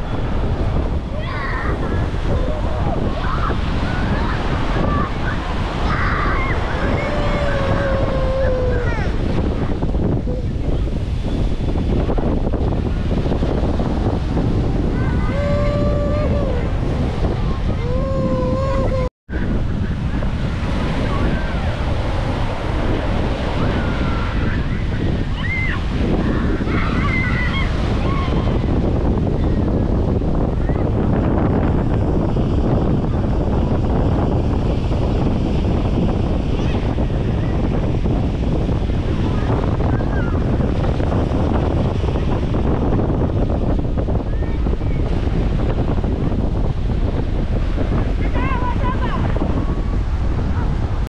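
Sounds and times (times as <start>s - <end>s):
surf breaking on beach: 0.0s - 51.0s
wind rumble on microphone: 0.0s - 51.0s
children calling out: 1.2s - 9.2s, 14.9s - 16.8s, 17.7s - 19.1s, 25.3s - 28.6s.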